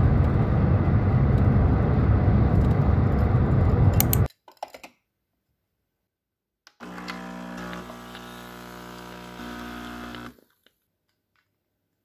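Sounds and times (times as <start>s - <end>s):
coffee machine pump buzzing: 6.8s - 10.4s.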